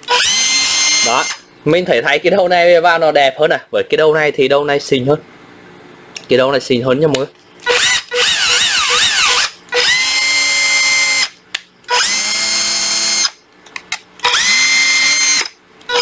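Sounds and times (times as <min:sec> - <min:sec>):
cordless drill motor whining: 0:00.0 - 0:01.4, 0:07.6 - 0:11.3, 0:11.9 - 0:13.4, 0:14.2 - 0:16.0.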